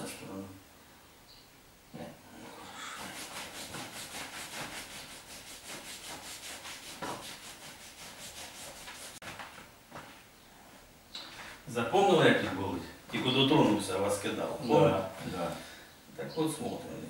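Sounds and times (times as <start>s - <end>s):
hands rubbing in massage: 3.0s - 10.3s.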